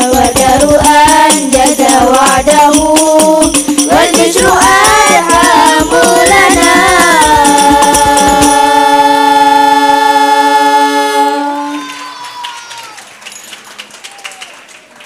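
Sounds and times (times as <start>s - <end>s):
frame drums: 0.0s - 9.2s
young voices singing in unison: 0.0s - 12.0s.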